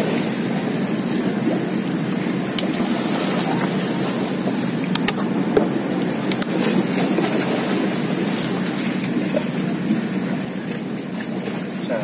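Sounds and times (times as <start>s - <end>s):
rushing wind: 0.0s - 10.2s
sea waves at shoreline: 0.0s - 12.0s.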